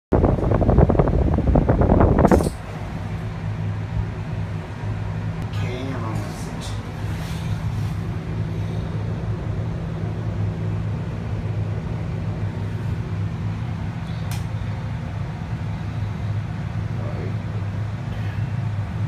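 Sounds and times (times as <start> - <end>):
low hum in a gondola: 0.1 - 19.0.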